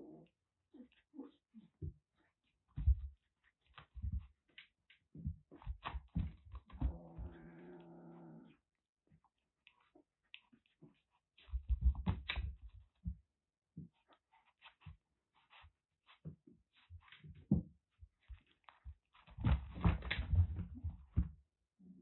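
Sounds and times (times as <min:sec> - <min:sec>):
paws thumping on carpet: 0:02.7 - 0:07.5, 0:10.7 - 0:13.2, 0:16.1 - 0:21.4.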